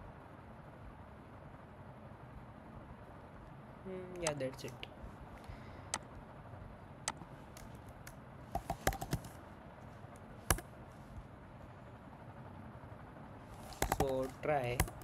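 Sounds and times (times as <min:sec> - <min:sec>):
keyboard typing: 0:07.1 - 0:09.4, 0:13.6 - 0:15.0.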